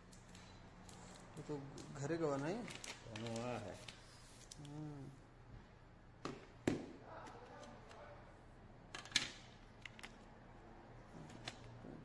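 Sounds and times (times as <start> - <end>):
card and paper rustling: 0.2 - 4.8.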